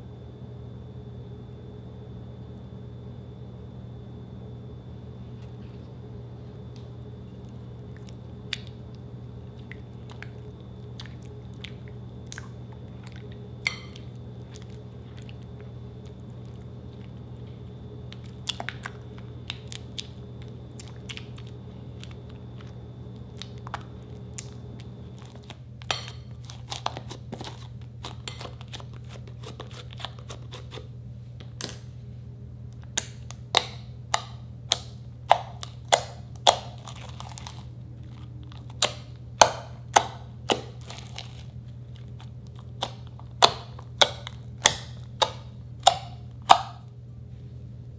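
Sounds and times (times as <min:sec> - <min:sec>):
steady low hum: 0:00.0 - 0:47.9
spatula stirring slime in bowl: 0:09.5 - 0:30.9, 0:33.6 - 0:46.8
sticky crackling slime: 0:18.2 - 0:30.8, 0:32.9 - 0:46.8
fingers popping slime: 0:42.8 - 0:46.8.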